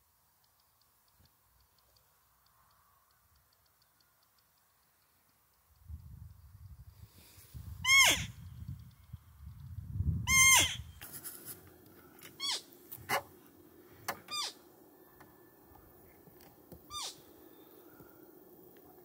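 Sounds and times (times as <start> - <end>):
high deer call whistles: 7.8 - 8.4, 10.3 - 10.9.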